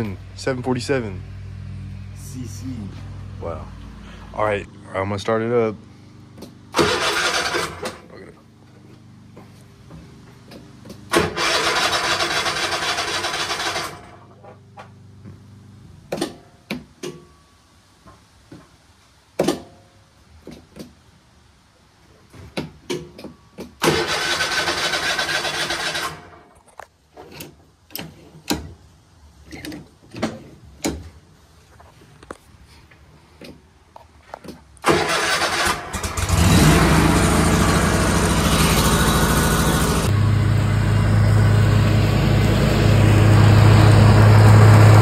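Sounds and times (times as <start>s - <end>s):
electric starter cranking engine: 6.7s - 8.1s, 11.1s - 14.3s, 23.8s - 26.4s, 34.8s - 40.3s.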